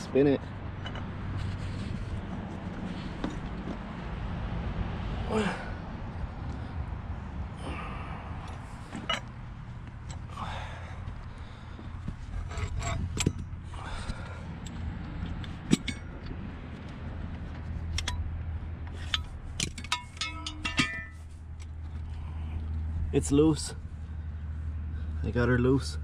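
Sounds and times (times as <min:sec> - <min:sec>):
steel tools clinking: 0:12.3 - 0:14.1, 0:18.9 - 0:21.4.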